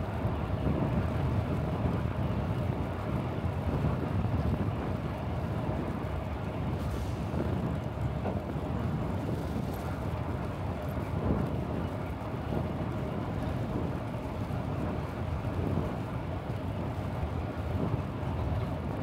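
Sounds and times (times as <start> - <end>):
road and traffic noise: 0.0 - 19.0
wind buffeting microphone: 0.0 - 19.0.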